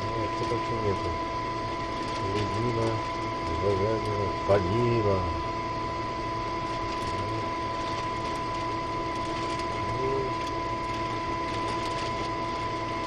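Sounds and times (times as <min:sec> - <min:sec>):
ventilation fans humming: 0:00.0 - 0:13.0
foil packets crinkling: 0:01.9 - 0:04.1, 0:06.6 - 0:12.5.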